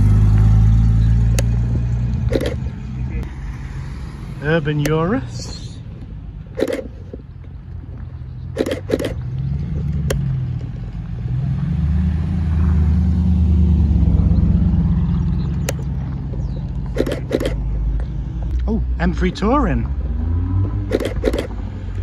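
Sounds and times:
car exhaust rumble: 0.0 - 22.0
short clacks: 1.3 - 2.7, 6.6 - 7.6, 8.5 - 10.9, 16.8 - 18.6, 20.8 - 21.6.

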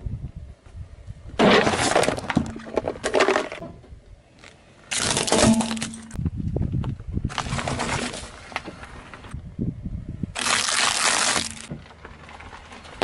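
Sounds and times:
metal tin crushed by tyre: 1.4 - 3.6, 4.9 - 6.2, 10.4 - 11.7
cardboard carton being flattened: 10.4 - 11.7.

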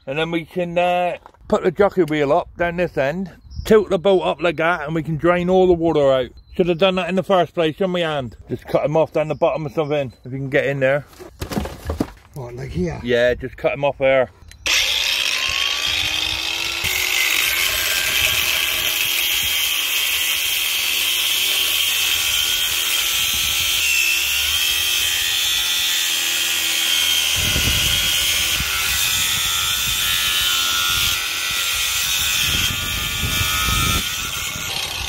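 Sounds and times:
angle grinder cutting metal: 14.5 - 35.0.

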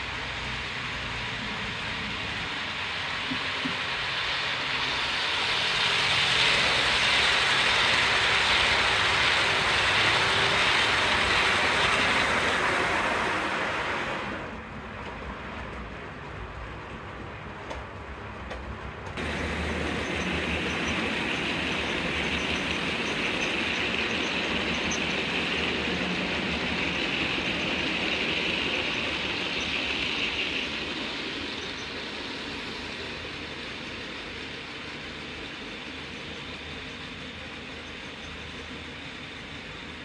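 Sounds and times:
freight train wheels rumbling on rail: 0.0 - 40.0.

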